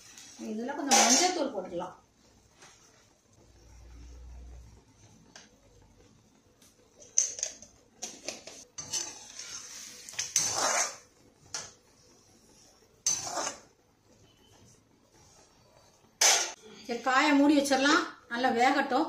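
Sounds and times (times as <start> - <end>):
steel spoon scraping a pan: 8.2 - 11.7, 12.5 - 13.7, 16.2 - 16.6.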